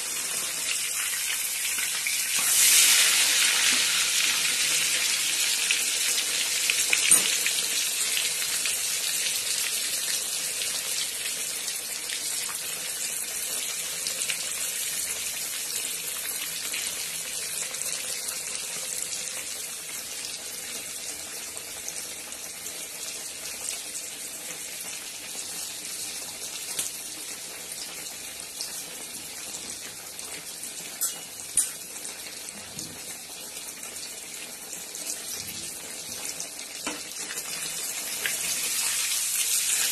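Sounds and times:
food sizzling in hot oil: 0:00.0 - 0:39.9.

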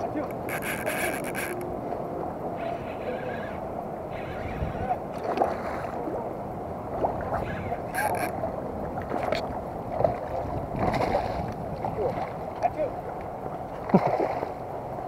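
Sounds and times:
distant voices: 0:00.0 - 0:13.9.

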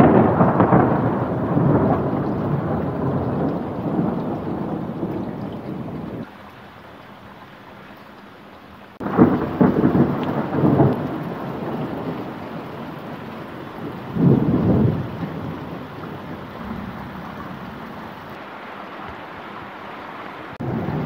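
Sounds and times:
thunder rumbling: 0:00.0 - 0:06.3, 0:09.0 - 0:18.4, 0:20.6 - 0:21.0.

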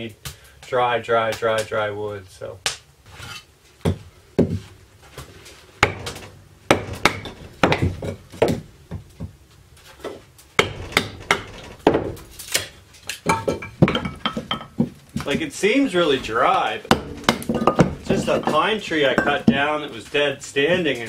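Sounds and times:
knife splitting wood: 0:10.6 - 0:13.3.

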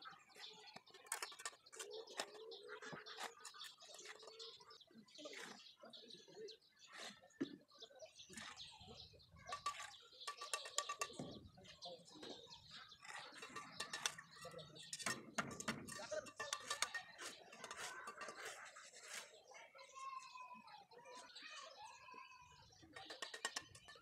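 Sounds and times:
hand tool tapping bricks: 0:13.5 - 0:18.6.

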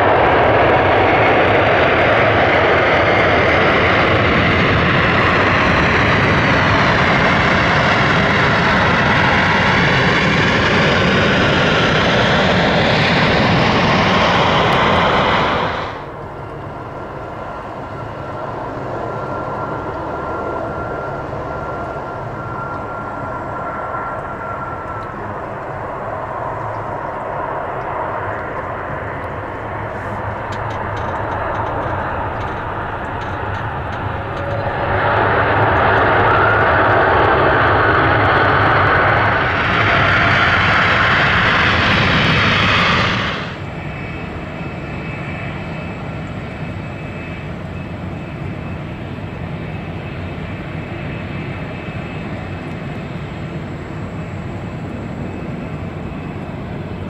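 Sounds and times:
reverse thrust roar with spray: 0:00.0 - 0:16.2, 0:26.2 - 0:44.0
distant airliner on approach: 0:00.0 - 0:57.0
jet engines landing: 0:00.0 - 0:57.0.

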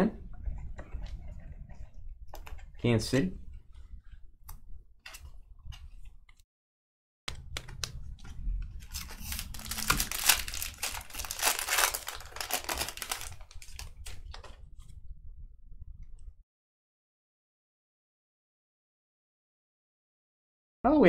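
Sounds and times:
cards clicking and rustling: 0:07.3 - 0:14.6
foil wrapper tearing and crinkling: 0:08.8 - 0:14.3.

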